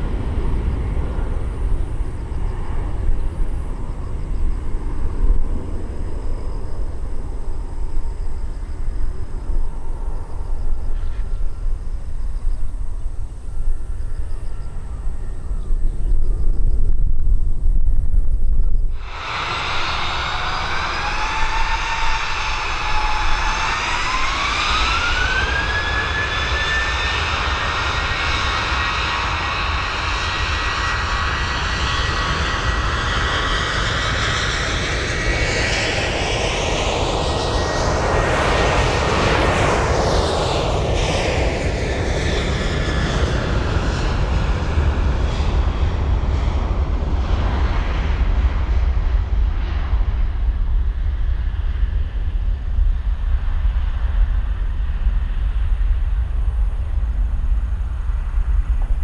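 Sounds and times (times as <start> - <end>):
deep rumble: 0.0 - 34.8, 40.4 - 59.0
jet airliner passing: 0.0 - 59.0
jet engines spooling up: 18.8 - 48.8.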